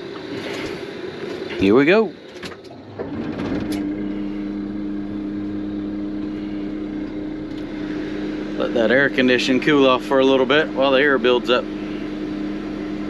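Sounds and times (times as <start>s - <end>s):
air-conditioning blower hum: 0.0s - 13.0s
dump truck idling: 2.7s - 12.5s
air-brake pressure building: 2.9s - 9.8s, 11.6s - 12.7s.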